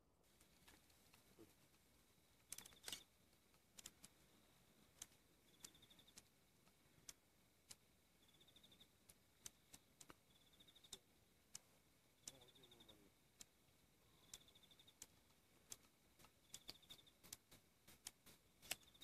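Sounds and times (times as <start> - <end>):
insect chirping trills: 2.4 - 3.2, 3.8 - 6.3, 8.1 - 19.0
sharp clicks: 2.4 - 4.2, 4.9 - 19.0.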